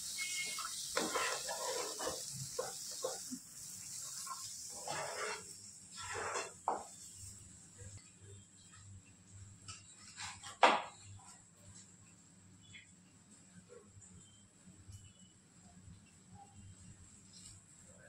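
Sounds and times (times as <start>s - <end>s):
steady high hiss: 0.0s - 8.4s
short scrapes and knocks: 4.8s - 6.9s.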